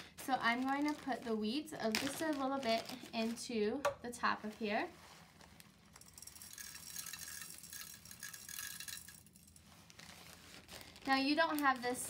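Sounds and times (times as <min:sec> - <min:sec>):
grains pouring rattle: 0:05.9 - 0:12.0.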